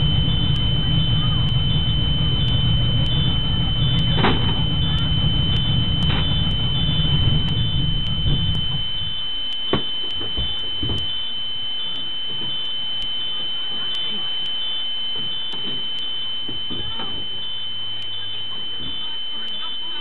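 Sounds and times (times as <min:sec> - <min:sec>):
low engine rumble: 0:00.0 - 0:20.0
steady high electronic tone: 0:00.0 - 0:20.0
knocks from people climbing: 0:09.7 - 0:11.1.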